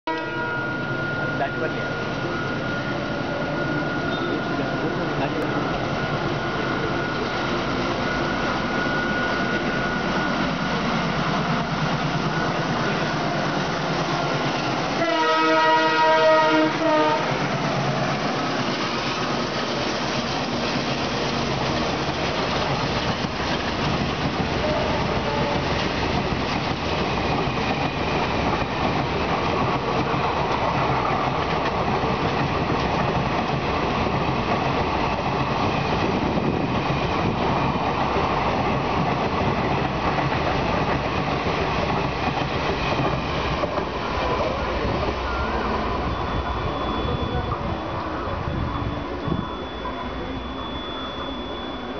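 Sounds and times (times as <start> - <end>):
locomotive horn blast: 0.1 - 0.8, 14.9 - 17.4, 24.6 - 25.7
train coaches clattering over rails: 3.6 - 51.9.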